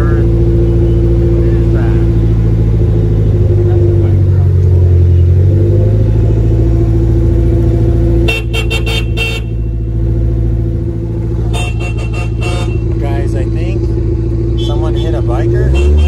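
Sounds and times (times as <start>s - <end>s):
car engine running: 0.0s - 16.0s
car horn honks: 8.2s - 9.9s, 11.4s - 13.1s, 14.4s - 16.0s.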